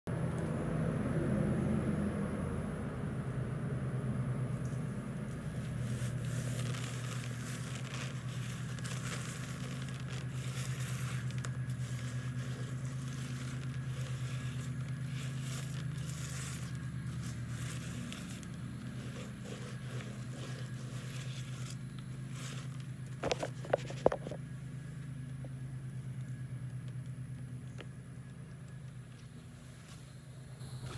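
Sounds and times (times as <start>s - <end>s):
low hum: 0.1s - 30.9s
hand rubbing dry seeds: 5.2s - 24.4s.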